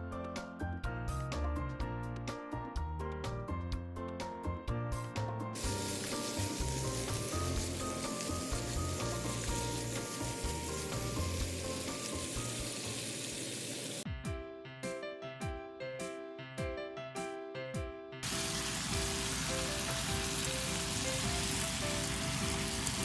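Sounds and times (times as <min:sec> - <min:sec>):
light background music: 0:00.0 - 0:23.0
meat sizzling in frying pan: 0:05.6 - 0:14.1, 0:18.2 - 0:23.0.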